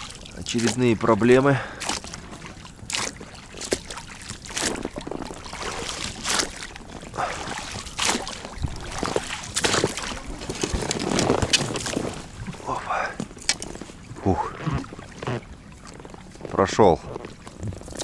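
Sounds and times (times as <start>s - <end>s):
water sloshing and splashing: 0.0s - 18.0s
branches knocking against boat: 1.7s - 14.0s.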